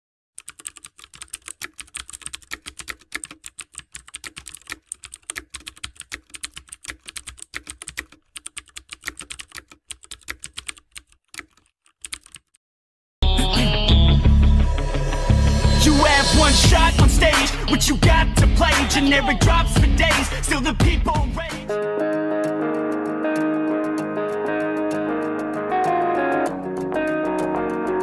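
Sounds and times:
rapid keyboard typing: 0:00.4 - 0:12.6, 0:19.5 - 0:28.0.

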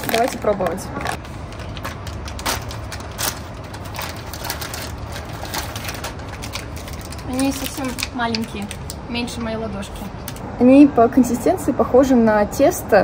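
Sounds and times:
clicks and rustles of handled food: 0:00.0 - 0:09.0
low background rumble: 0:00.0 - 0:13.0.

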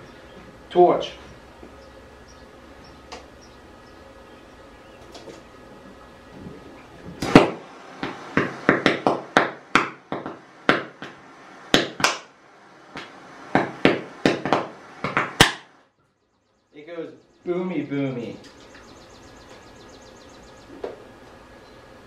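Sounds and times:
gas popping as flame ignites it: 0:06.3 - 0:12.3.

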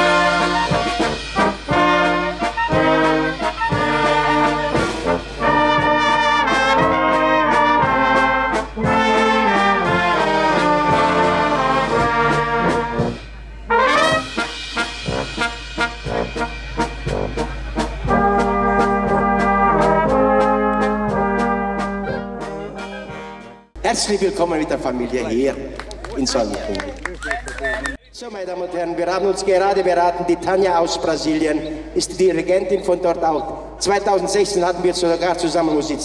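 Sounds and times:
brass band playing: 0:00.0 - 0:24.9.

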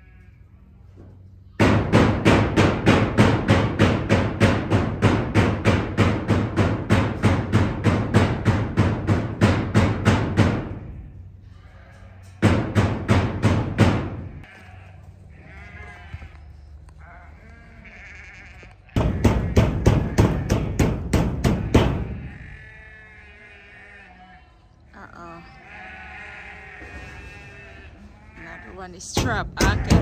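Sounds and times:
sheep bleating: 0:00.0 - 0:00.5, 0:10.9 - 0:12.4, 0:14.3 - 0:20.7, 0:21.5 - 0:30.0.

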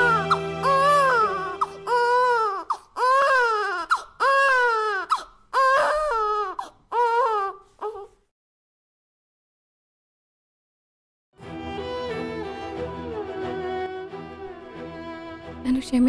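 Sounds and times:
low musical drone: 0:00.0 - 0:02.3, 0:11.4 - 0:15.7
baby crying: 0:00.0 - 0:08.2.

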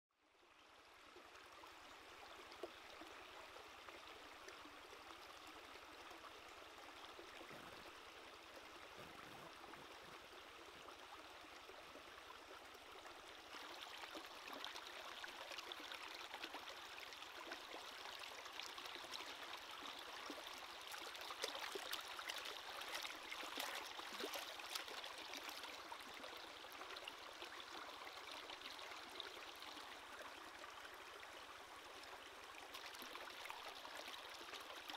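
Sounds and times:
stream water running over rocks: 0:00.5 - 0:34.9
light water splashes: 0:13.0 - 0:30.6.

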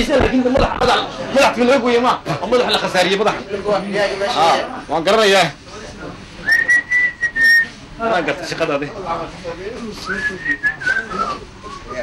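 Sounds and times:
person whistling: 0:06.5 - 0:07.7, 0:10.1 - 0:11.9.

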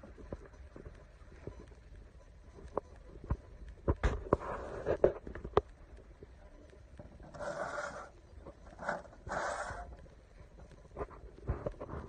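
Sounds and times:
short rustling scrapes: 0:07.3 - 0:08.1.

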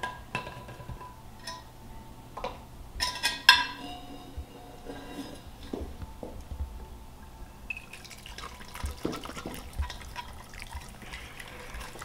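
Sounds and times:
broth splashing and dripping: 0:07.2 - 0:12.0
soup pouring into glass bowl: 0:07.7 - 0:12.0.

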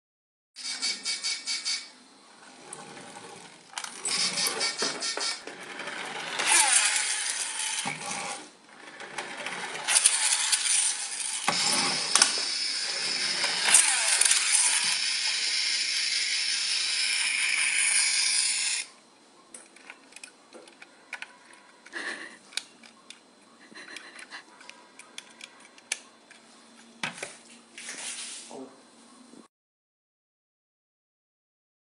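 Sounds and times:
toy bus rattling and whirring: 0:00.6 - 0:19.0, 0:19.6 - 0:26.5.

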